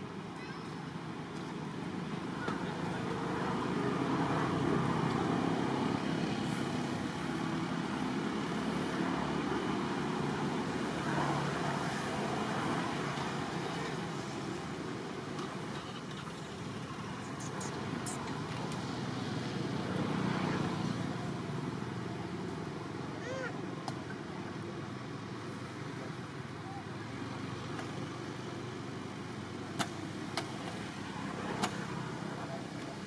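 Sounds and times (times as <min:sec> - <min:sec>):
distant road traffic: 0:00.0 - 0:33.0.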